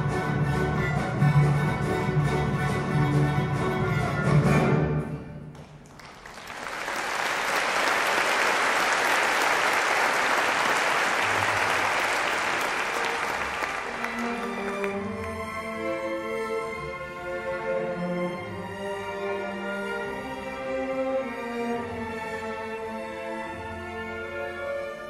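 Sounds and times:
orchestra playing: 0:00.0 - 0:05.5, 0:06.9 - 0:25.0
audience applauding: 0:05.6 - 0:15.4.

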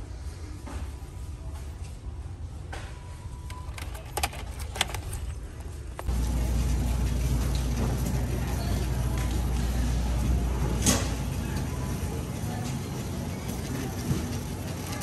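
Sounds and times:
shopping cart wheels rumbling: 0:03.2 - 0:15.0.

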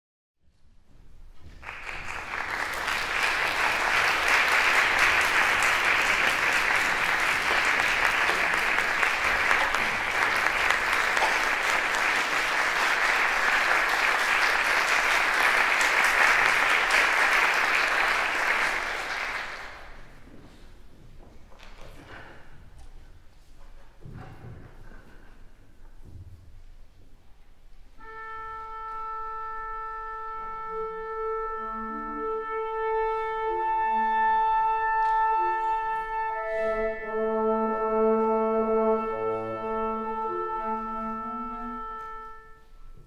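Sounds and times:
audience applause: 0:01.6 - 0:20.1.

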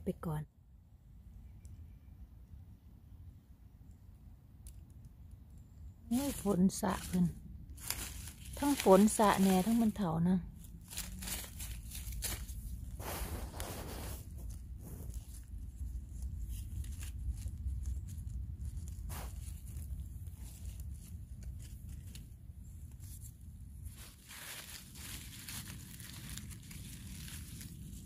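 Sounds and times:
steady low rumble: 0:00.0 - 0:28.0
wet leaves rustling and crackling: 0:06.1 - 0:28.0.

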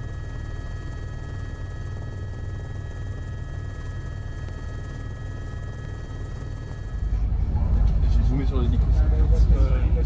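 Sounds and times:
aircraft drone in flight: 0:00.0 - 0:10.0.

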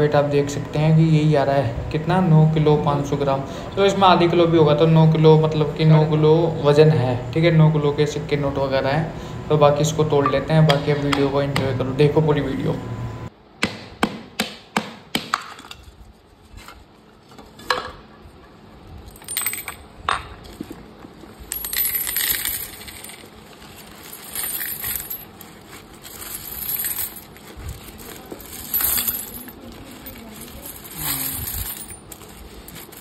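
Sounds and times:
coins clinking: 0:19.1 - 0:19.8, 0:21.4 - 0:33.0
banknotes rustling: 0:21.2 - 0:33.0.

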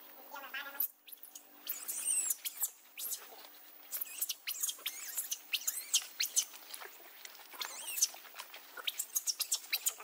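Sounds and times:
baby monkey squealing: 0:00.7 - 0:06.6, 0:07.6 - 0:08.2, 0:08.8 - 0:10.0.

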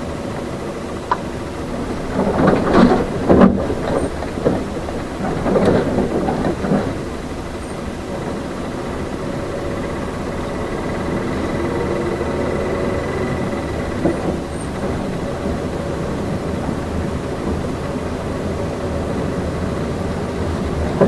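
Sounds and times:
bus engine and road rumble: 0:00.0 - 0:21.0
rattling knocks and clatter: 0:01.7 - 0:18.0.

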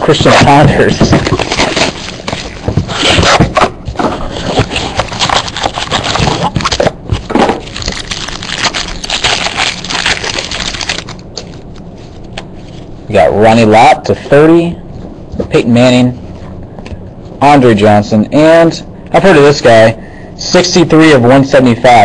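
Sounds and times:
card packaging crinkling and tearing: 0:00.3 - 0:03.5, 0:04.3 - 0:11.8.

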